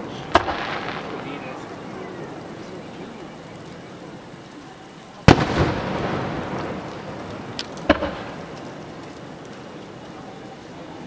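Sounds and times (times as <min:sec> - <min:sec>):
firework bang with rolling echo: 0:00.0 - 0:03.5, 0:05.2 - 0:09.7
low outdoor background hum: 0:00.0 - 0:11.0.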